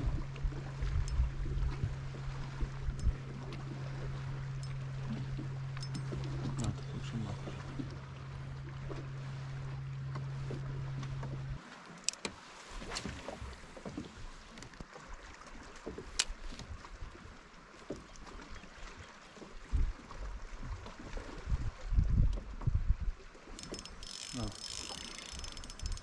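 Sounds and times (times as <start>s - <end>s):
low hum: 0.0s - 11.6s
water lapping against kayak hull: 0.0s - 26.0s
fishing reel clicks and knocks: 4.6s - 6.8s, 23.5s - 26.0s.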